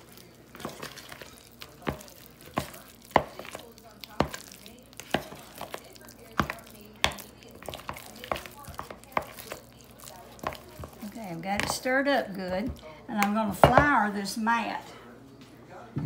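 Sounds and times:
fork scraping plastic bowl: 4.2 - 11.8.

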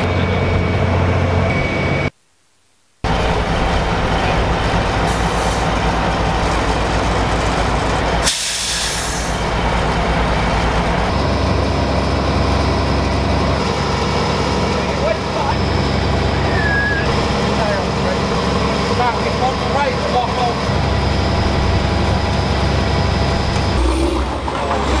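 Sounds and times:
diesel engines idling: 0.0 - 1.6, 3.0 - 25.0
air hiss: 8.2 - 9.4.

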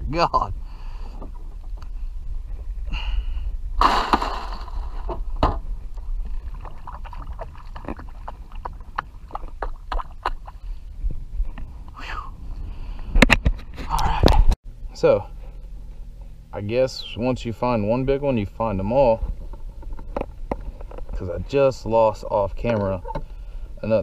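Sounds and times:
low steady rumble: 0.0 - 24.0
water splash: 6.3 - 10.5.

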